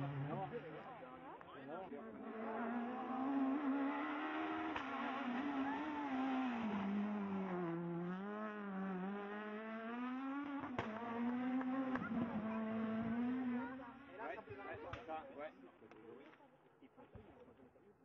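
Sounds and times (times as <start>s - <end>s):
rally car engine revving: 0.0s - 1.0s, 1.9s - 14.3s.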